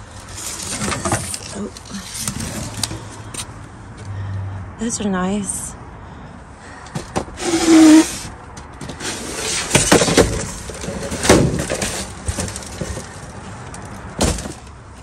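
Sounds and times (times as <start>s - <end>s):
cardboard and plastic rustling: 0.0s - 3.5s, 7.0s - 14.7s.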